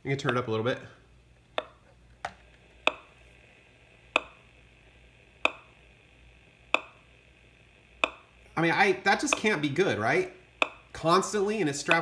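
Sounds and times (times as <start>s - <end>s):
meter popping: 1.5s - 3.4s, 4.0s - 5.9s, 6.6s - 7.2s, 7.8s - 12.0s.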